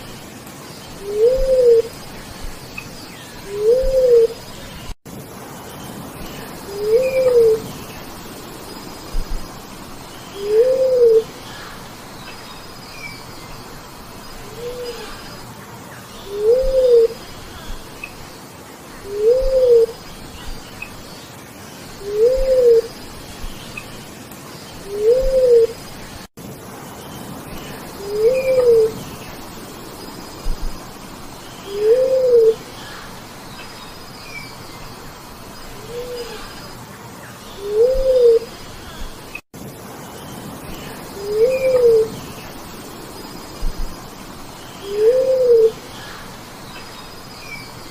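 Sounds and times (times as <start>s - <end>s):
dove hooting coos: 1.0s - 2.0s, 3.4s - 4.4s, 6.7s - 7.8s, 10.4s - 11.6s, 14.4s - 15.4s, 16.2s - 17.8s, 19.0s - 20.0s, 22.0s - 23.0s, 24.8s - 25.8s, 28.0s - 29.1s, 31.6s - 33.0s, 35.8s - 36.5s, 37.6s - 38.6s, 41.2s - 42.2s, 44.8s - 46.2s.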